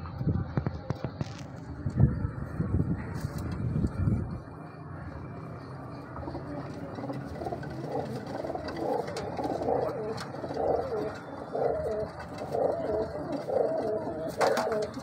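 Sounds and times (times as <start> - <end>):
pigeons cooing: 5.8 - 15.0.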